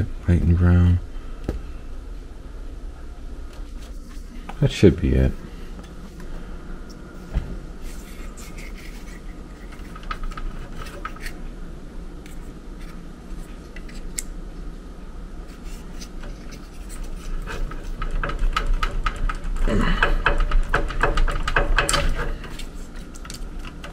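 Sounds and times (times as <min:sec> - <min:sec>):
low steady hum: 0:00.0 - 0:23.9
hands handling wires and plastic: 0:20.0 - 0:23.9.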